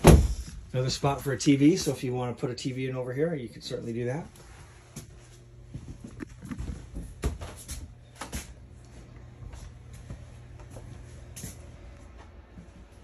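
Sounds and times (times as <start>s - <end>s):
steady low hum: 0.0s - 13.0s
footsteps on trailer floor: 4.3s - 13.0s.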